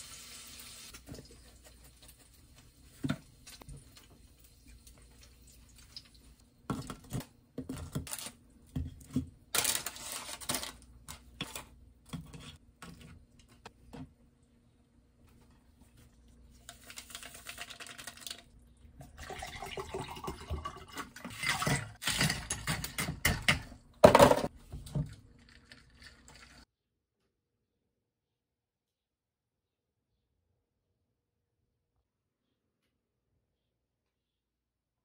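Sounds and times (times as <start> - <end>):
water pouring into a glass: 19.0 - 21.2.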